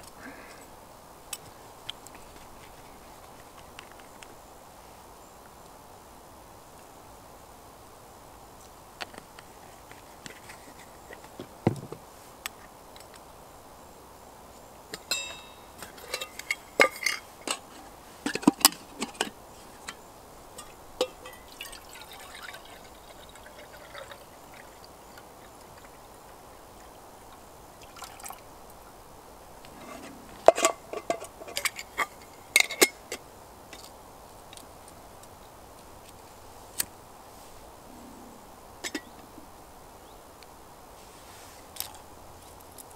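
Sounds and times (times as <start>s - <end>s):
brief metallic ring: 15.1s - 15.8s
metal cookware clinking and clattering: 15.1s - 17.6s, 20.6s - 21.8s.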